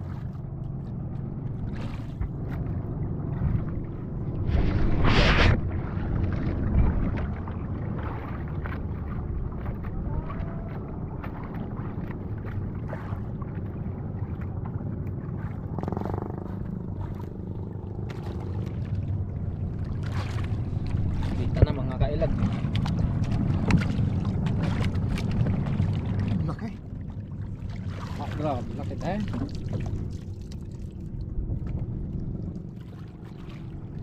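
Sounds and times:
boat engine rumble: 0.0s - 34.0s
wind noise on microphone: 3.4s - 8.2s.

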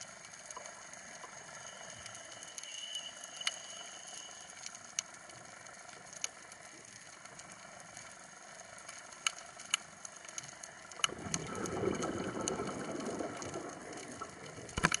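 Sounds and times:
underwater reef clicks: 4.6s - 15.0s
regulator exhaust bubbles: 10.7s - 15.0s.

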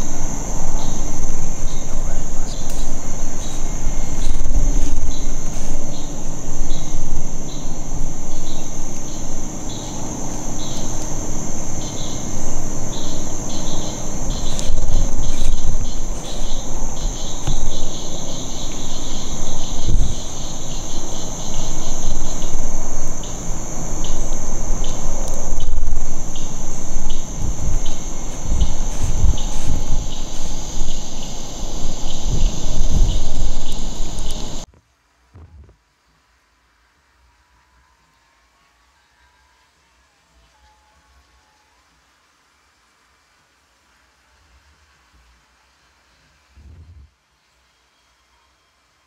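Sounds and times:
insects droning and chirping: 0.0s - 34.7s, 36.2s - 46.5s
low rumble: 0.0s - 34.7s.

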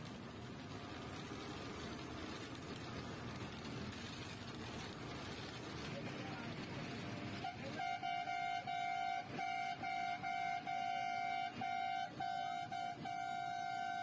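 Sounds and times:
vehicle horn tooting: 7.4s - 14.0s.

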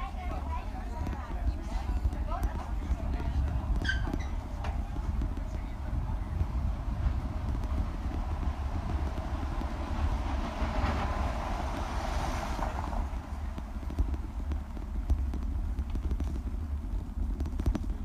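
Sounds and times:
bicycle rattling over brick street: 0.0s - 18.0s
wind on microphone: 0.0s - 18.0s.

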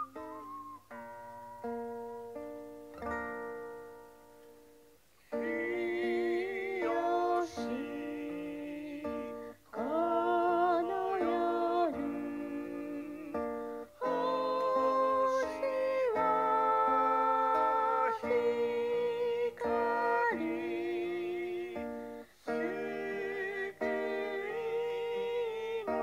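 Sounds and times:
plucked acoustic guitar: 0.0s - 4.5s, 5.4s - 26.0s
voices singing a hymn: 5.4s - 26.0s.

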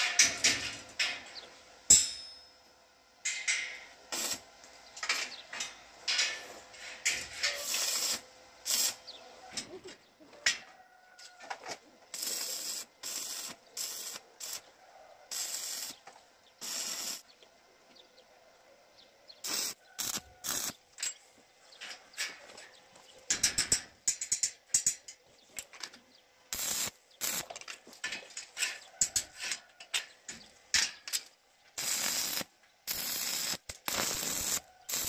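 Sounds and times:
crackling hissing welding arc: 3.3s - 9.1s, 12.1s - 14.7s, 15.3s - 17.3s, 19.4s - 20.8s, 26.5s - 27.6s, 31.1s - 35.0s.

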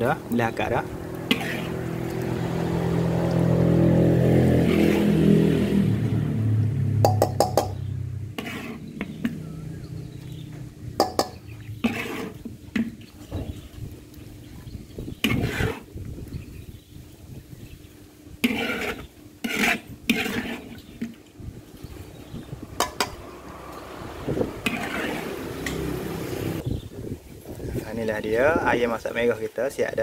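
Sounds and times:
low engine drone passing: 0.0s - 12.0s, 21.8s - 26.7s
metal ladle scraping a wok: 0.5s - 5.4s, 7.0s - 13.6s, 15.1s - 15.9s, 18.4s - 23.9s, 24.5s - 26.1s
sharp knocks: 7.0s - 7.8s.

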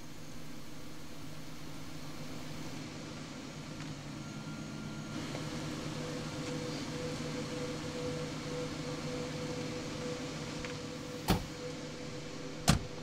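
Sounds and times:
steady low hum: 0.0s - 13.0s
car door shutting: 11.3s - 11.5s, 12.6s - 12.9s.

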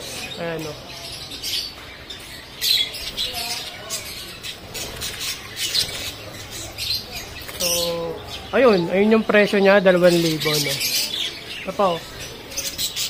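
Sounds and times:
budgerigars chirping: 0.0s - 13.0s.

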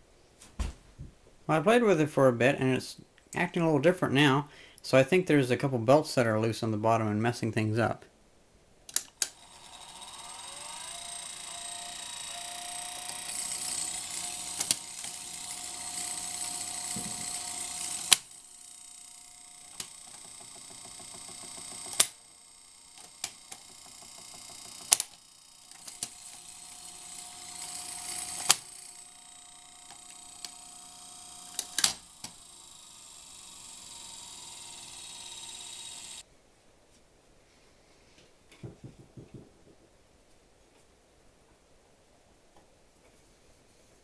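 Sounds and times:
mechanism clicks: 8.9s - 18.3s, 19.6s - 22.2s, 22.9s - 29.0s, 29.7s - 36.2s
tape transport humming: 9.0s - 36.2s.

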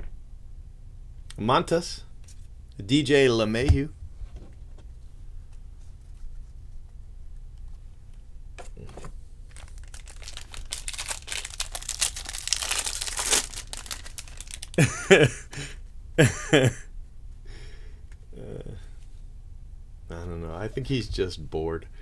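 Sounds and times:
wrapper crinkling: 9.5s - 14.8s.

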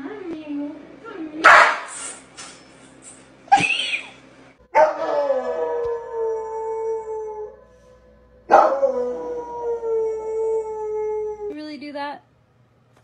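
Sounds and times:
dog howling: 4.8s - 11.5s.

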